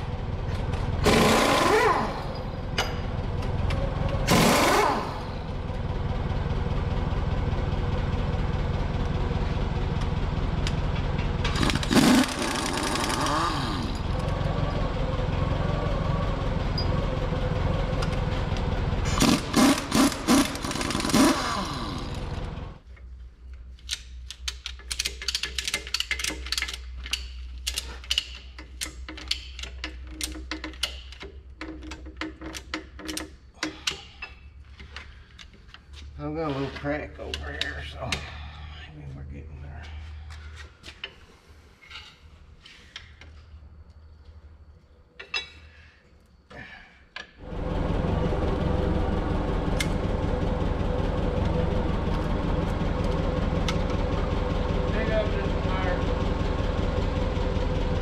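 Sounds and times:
pneumatic impact wrench hammering: 1.0s - 3.0s, 4.3s - 5.3s, 11.5s - 14.0s, 19.1s - 22.3s
motor drone: 11.4s - 14.9s, 19.0s - 22.8s, 47.4s - 58.0s.

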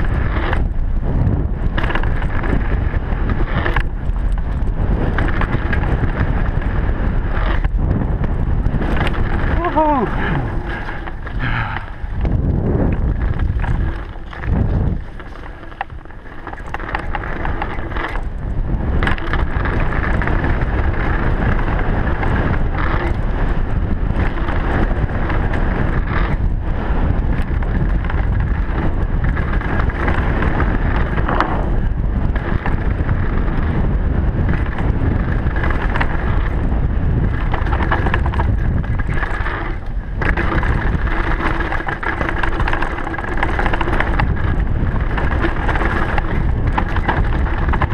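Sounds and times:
bike knocking and rattling: 0.0s - 47.9s
tyres rolling on dirt: 0.0s - 47.9s
wind on microphone: 0.0s - 47.9s.

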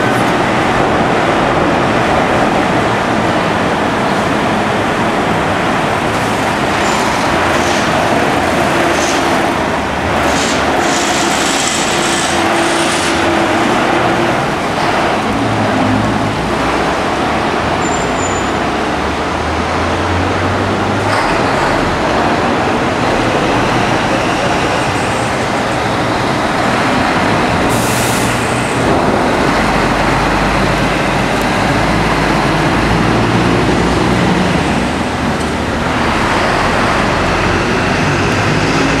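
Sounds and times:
truck diesel engines running: 0.0s - 39.0s
air hiss burst: 10.2s - 13.2s, 27.7s - 28.6s.

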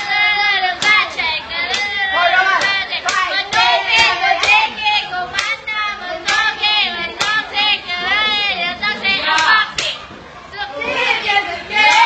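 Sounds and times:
young voices singing in unison: 0.0s - 12.0s
hand claps: 0.8s - 4.7s, 5.3s - 5.6s, 6.2s - 6.5s, 7.2s - 7.4s, 9.3s - 10.0s.

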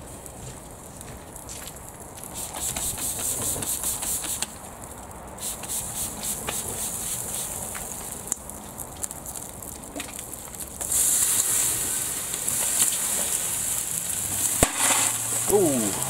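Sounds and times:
fire crackling and popping: 0.0s - 16.0s
spray bottle hissing: 2.3s - 4.6s, 5.4s - 7.8s.

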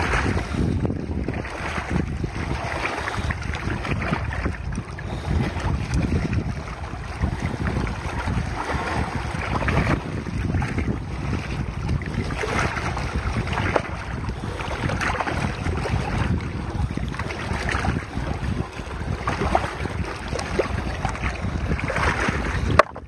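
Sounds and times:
wind buffeting microphone: 0.0s - 23.0s
water sloshing in plastic pan: 21.8s - 23.0s.

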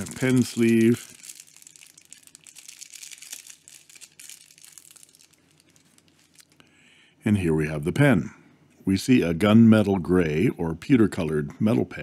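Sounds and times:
plastic sleeve crinkling: 0.0s - 6.6s.

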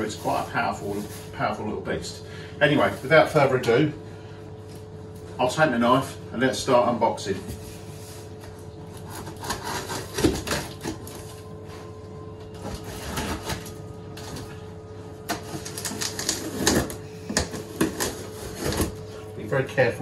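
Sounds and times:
faint hum: 0.0s - 20.0s
knife slicing tape and cardboard: 9.0s - 11.1s.

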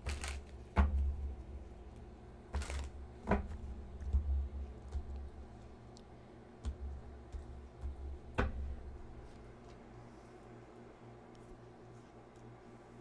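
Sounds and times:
cards clicking and tapping: 0.0s - 0.6s.

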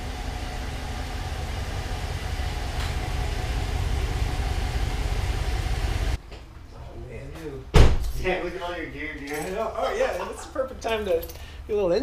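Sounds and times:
pickup truck engine rumbling: 0.0s - 6.2s.

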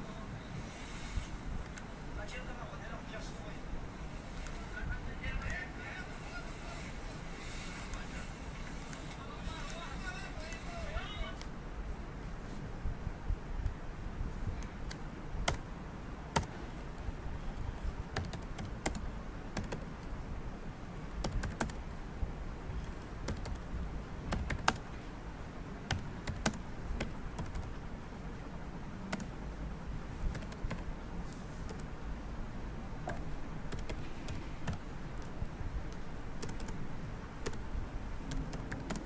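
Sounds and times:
low steady hum: 0.0s - 39.0s
typing on computer keyboard: 14.6s - 15.6s, 16.3s - 16.5s, 18.1s - 20.1s, 21.1s - 21.8s, 23.2s - 23.7s, 24.3s - 24.9s, 25.9s - 27.8s, 29.1s - 29.3s, 30.3s - 30.9s, 33.0s - 36.8s, 38.2s - 39.0s.

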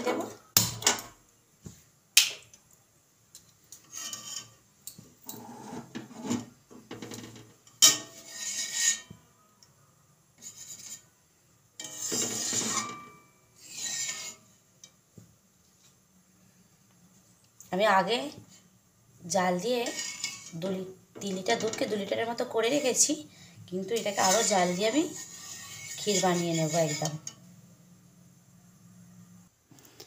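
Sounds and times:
metal spatula scraping a pan: 3.7s - 4.7s, 5.3s - 9.3s, 10.4s - 11.2s, 11.8s - 15.0s, 19.6s - 27.5s.

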